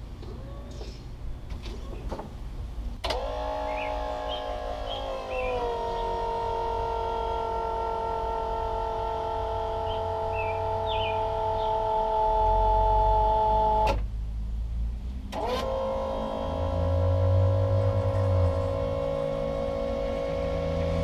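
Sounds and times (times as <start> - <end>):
pump motor whining: 3.0 - 14.0, 15.3 - 21.0.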